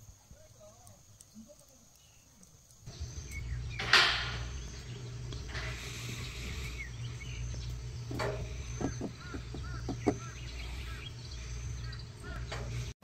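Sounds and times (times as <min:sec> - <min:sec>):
faint bird chirps: 0:00.2 - 0:12.9
steady low rumble: 0:02.9 - 0:13.0.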